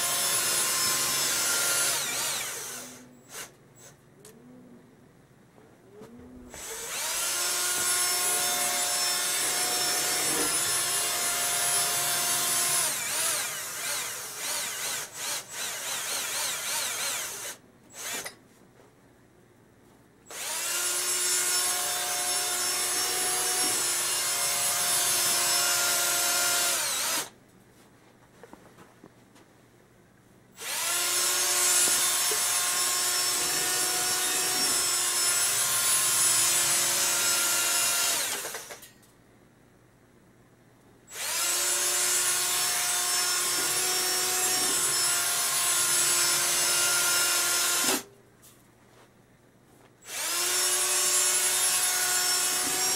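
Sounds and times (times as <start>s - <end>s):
cordless drill motor whine: 0.0s - 3.5s, 6.6s - 18.3s, 20.3s - 27.3s, 30.6s - 35.6s, 50.1s - 52.9s.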